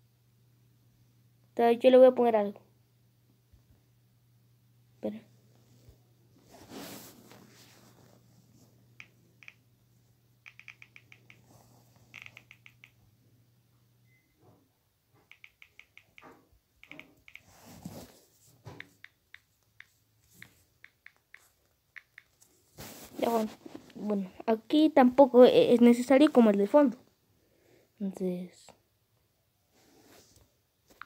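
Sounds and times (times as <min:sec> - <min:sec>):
touchscreen typing clicks: 0:09.0 - 0:09.6, 0:10.4 - 0:13.0, 0:15.2 - 0:17.5, 0:18.7 - 0:22.4.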